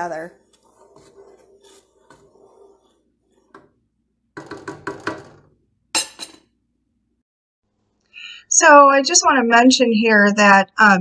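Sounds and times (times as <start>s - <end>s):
wooden spoon knocking metal pot: 4.4s - 6.4s.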